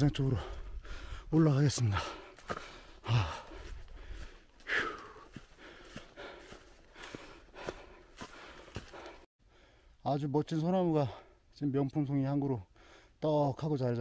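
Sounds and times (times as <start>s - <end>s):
person breathing hard: 0.3s - 10.0s, 12.7s - 13.2s
footsteps on dry leaves: 2.3s - 9.2s.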